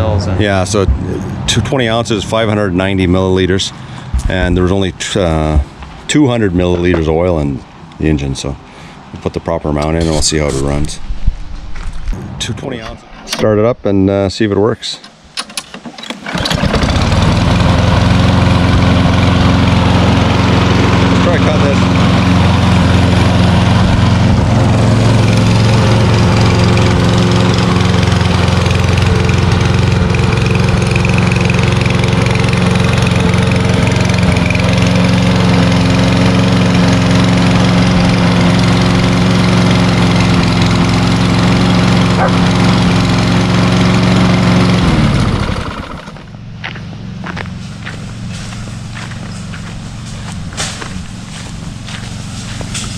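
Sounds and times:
lawnmower engine running: 15.0 - 52.9.

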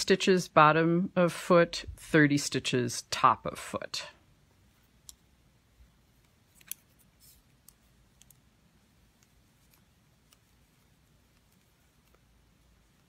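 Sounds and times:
knitting needles clicking: 4.9 - 5.3, 6.2 - 13.0.

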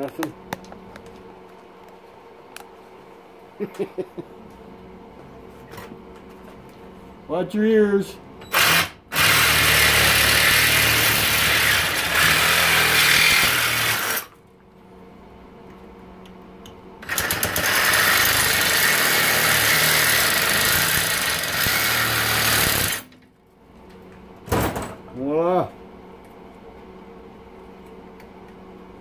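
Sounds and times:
reciprocating saw cutting metal: 8.6 - 14.3, 17.1 - 23.1.

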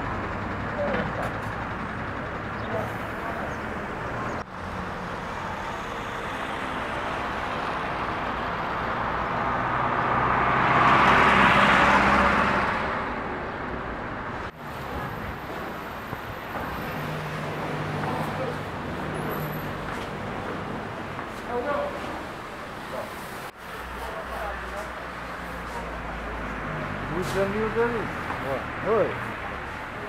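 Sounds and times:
truck diesel engine running: 0.0 - 9.1.

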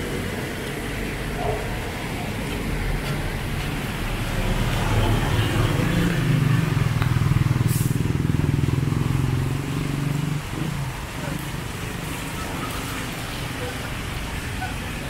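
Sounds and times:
car passing on wet road: 0.0 - 15.0
steady rain: 0.0 - 15.0
motorcycle passing: 3.4 - 13.2.

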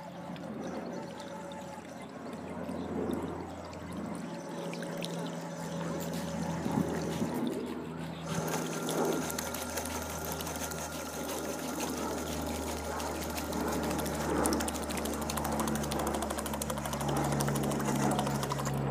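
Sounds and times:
paddlewheel turning in water: 0.0 - 18.9.

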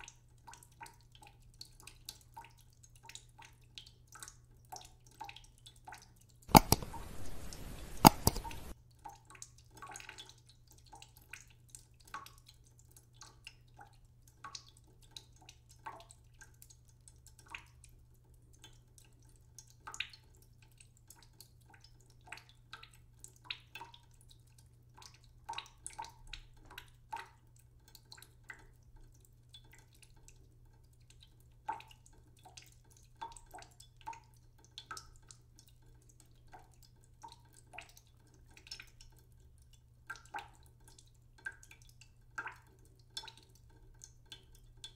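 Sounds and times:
oil crackling in a pan: 0.0 - 44.9
sharp click: 6.5 - 8.7.

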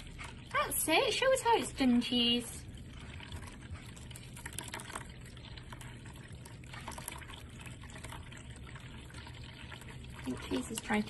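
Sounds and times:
small splashes and clicks: 0.0 - 11.0
water fountain trickling: 0.0 - 11.0.

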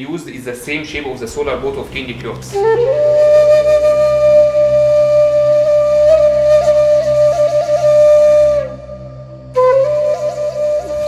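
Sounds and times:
low drone: 0.0 - 11.0
woodwind holding long note: 2.4 - 11.0.

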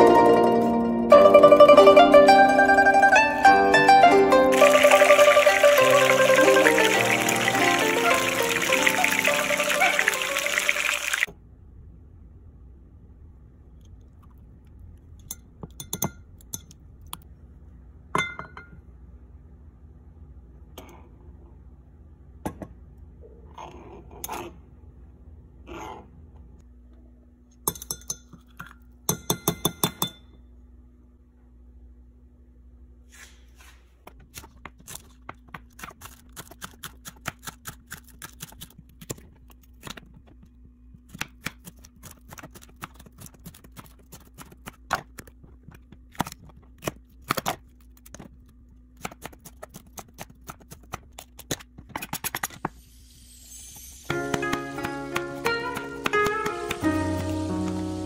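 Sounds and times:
spoon clinking on glass: 27.7 - 30.3.

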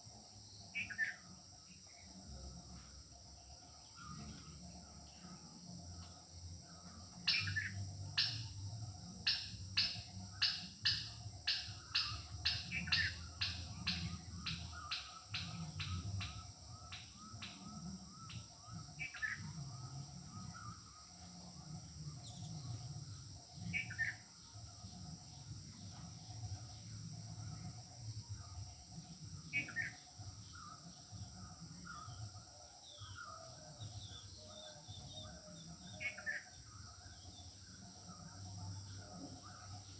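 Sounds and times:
high insect drone: 0.0 - 39.9
sharp bird chirps: 7.2 - 8.6, 9.3 - 19.5.

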